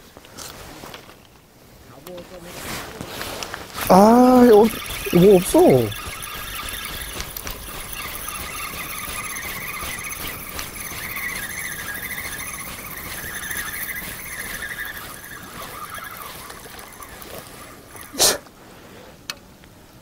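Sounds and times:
wavering high whistle: 3.9s - 18.4s.

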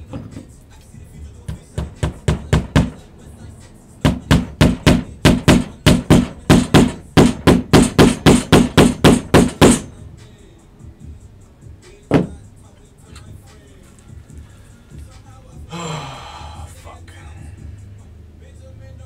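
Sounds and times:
hammer striking: 1.5s - 3.0s, 4.0s - 9.9s, 12.1s - 12.4s.

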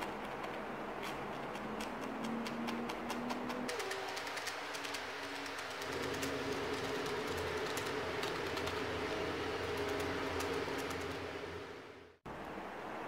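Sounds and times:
steady low hum: 3.8s - 13.0s.

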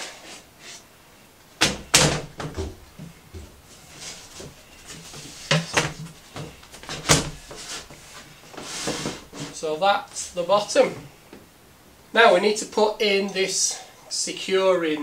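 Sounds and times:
wooden panel knocking: 1.6s - 3.5s.

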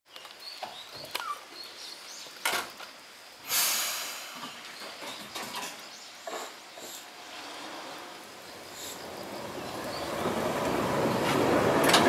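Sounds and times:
compressed air hiss: 3.4s - 4.8s, 6.5s - 9.1s.

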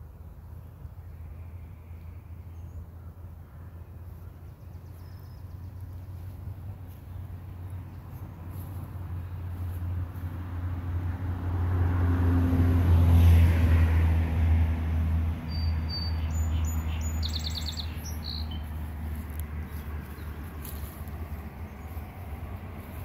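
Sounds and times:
vehicle driving past: 3.8s - 23.0s
small bird chirping: 15.5s - 20.9s.

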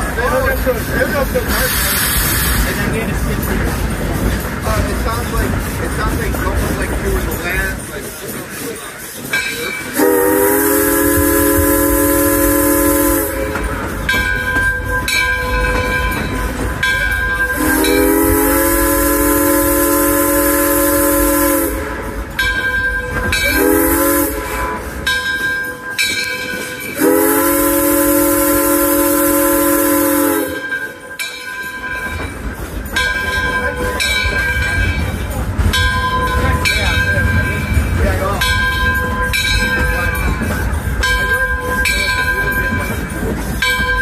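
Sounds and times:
rail joint clicks: 0.0s - 44.0s
train rumbling: 0.0s - 44.0s
steam locomotive chime whistle: 9.2s - 35.0s.

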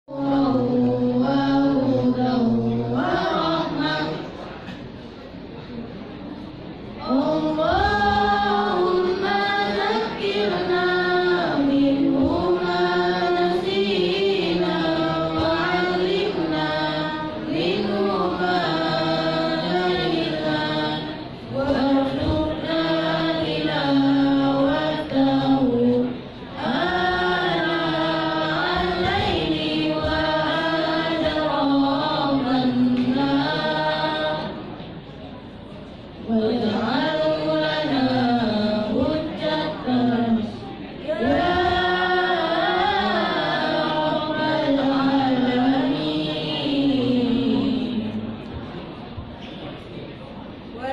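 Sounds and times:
students chanting a prayer: 0.0s - 5.2s, 6.8s - 50.1s.

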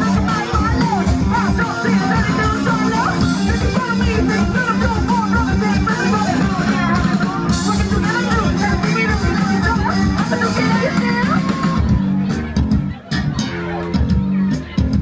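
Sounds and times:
electric guitar: 0.0s - 15.0s
funk band playing: 0.0s - 15.0s.

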